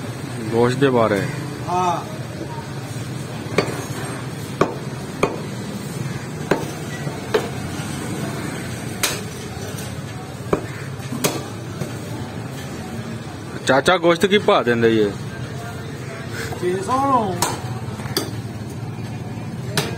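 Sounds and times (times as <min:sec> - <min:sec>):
cleaver chopping meat on wood block: 0:04.6 - 0:05.5, 0:06.4 - 0:07.6, 0:09.0 - 0:09.3, 0:10.5 - 0:11.6.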